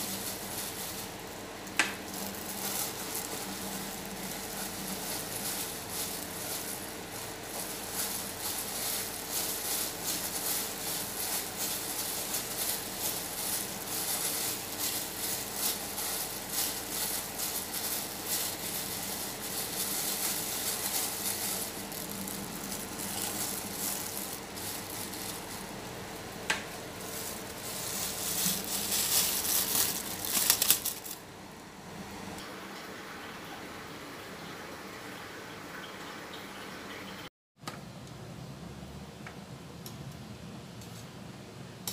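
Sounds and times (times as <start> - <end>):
plastic bags crinkling: 0.0 - 31.3.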